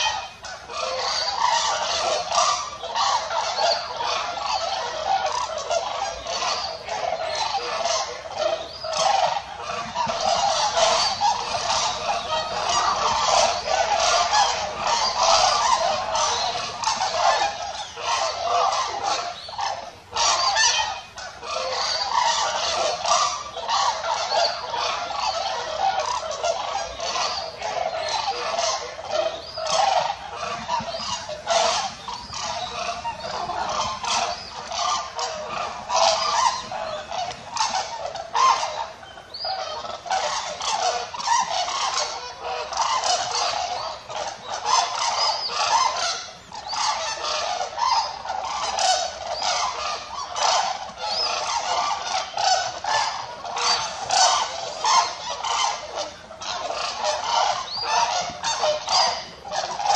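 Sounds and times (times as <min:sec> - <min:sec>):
cranes calling: 0:00.0 - 0:59.9.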